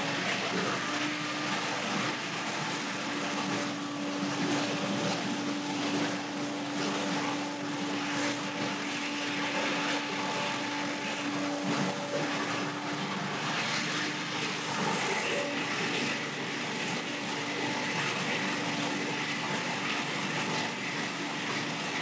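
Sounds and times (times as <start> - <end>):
leaf blower engine humming: 0.0 - 16.5.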